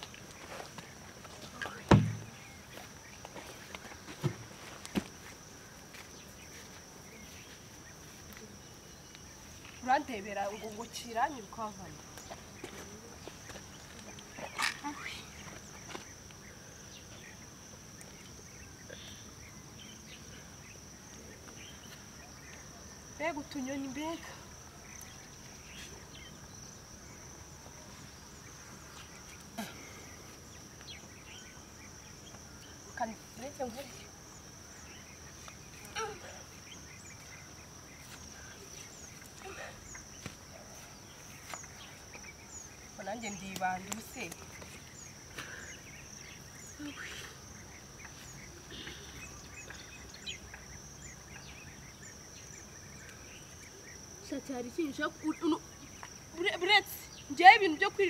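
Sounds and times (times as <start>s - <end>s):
bird chirps: 28.3s - 57.4s.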